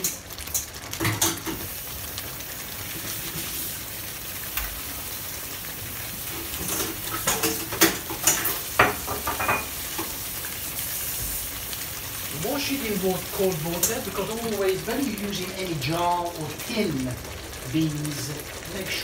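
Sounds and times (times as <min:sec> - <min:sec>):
stew sizzling in a pot: 0:00.0 - 0:19.0
kitchenware clinking: 0:06.4 - 0:10.1.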